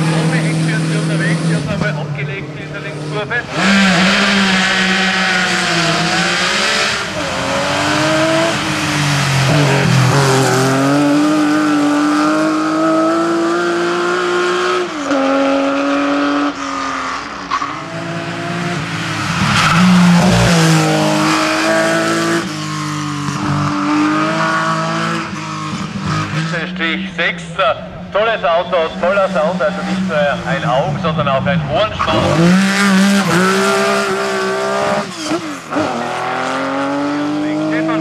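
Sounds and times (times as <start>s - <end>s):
rally car engines revving: 0.0s - 38.0s
tyre squeal: 3.6s - 8.0s.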